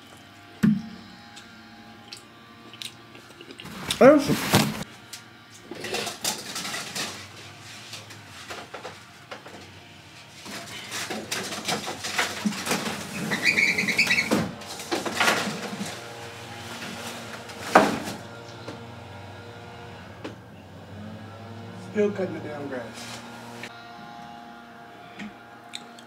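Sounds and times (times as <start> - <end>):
lawn mower droning: 0.0 - 25.8
knocks and rustles of handling: 3.6 - 4.9, 5.8 - 13.5.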